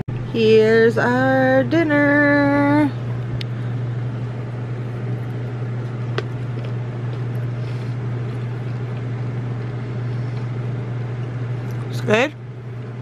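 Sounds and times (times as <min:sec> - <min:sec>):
machine humming and whooshing: 0:00.0 - 0:13.0.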